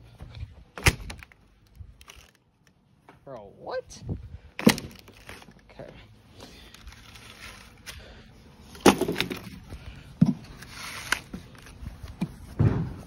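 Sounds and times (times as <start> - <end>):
wood cracking: 4.6 - 5.6.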